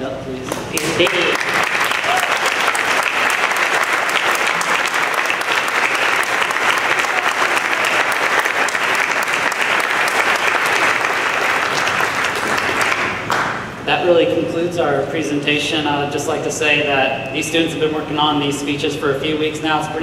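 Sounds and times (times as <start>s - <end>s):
crowd applauding: 0.6s - 13.7s.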